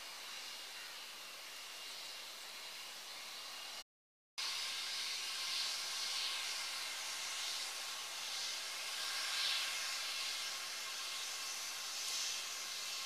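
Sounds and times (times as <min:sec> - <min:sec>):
jet engines idling: 0:04.4 - 0:13.0.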